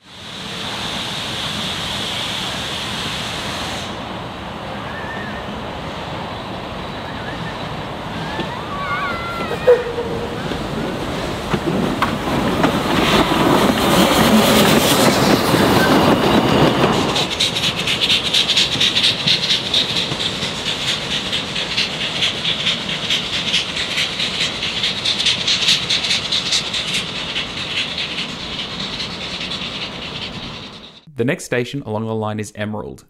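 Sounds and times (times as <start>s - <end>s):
train rushing: 0.0s - 31.1s
train wheels clattering on rail: 7.2s - 31.1s.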